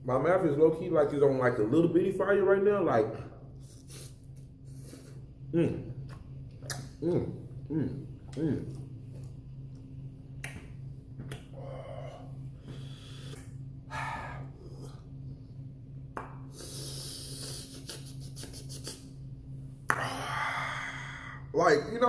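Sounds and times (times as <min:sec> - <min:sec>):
steady low hum: 0:00.0 - 0:22.0
man breathing through mouth: 0:16.5 - 0:18.2.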